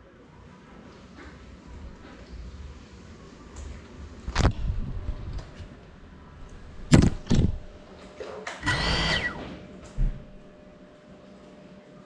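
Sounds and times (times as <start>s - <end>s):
drone motors whining: 8.6s - 9.6s.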